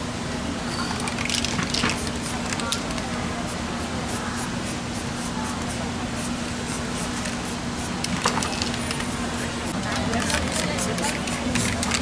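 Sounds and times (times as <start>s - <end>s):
spray paint can hissing: 4.1s - 12.0s.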